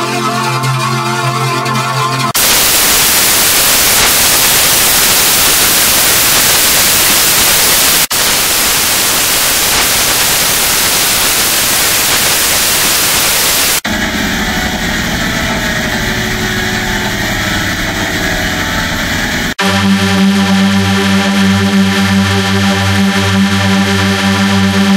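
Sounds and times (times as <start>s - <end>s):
steady electronic tones: 0.6s - 24.9s
static hiss: 2.4s - 13.8s.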